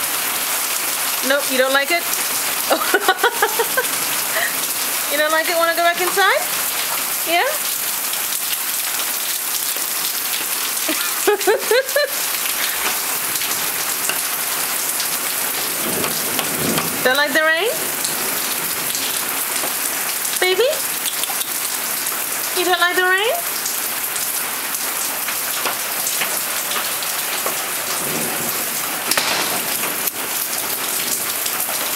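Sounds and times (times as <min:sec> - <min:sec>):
heavy rain on hard surfaces: 0:00.0 - 0:31.9
drips ticking: 0:08.4 - 0:24.4.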